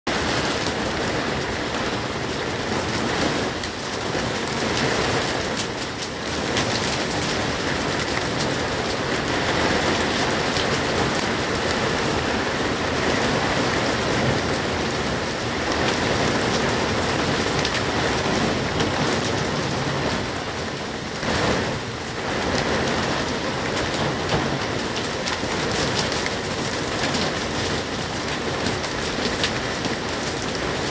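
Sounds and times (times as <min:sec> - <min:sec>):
heavy rain on roof sheeting: 0:00.1 - 0:30.9.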